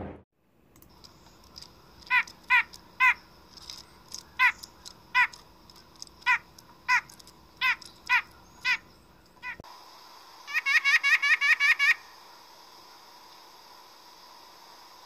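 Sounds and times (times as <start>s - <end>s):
nuthatch nasal calls: 2.0s - 3.3s, 4.1s - 5.4s, 6.2s - 9.6s, 10.5s - 12.1s.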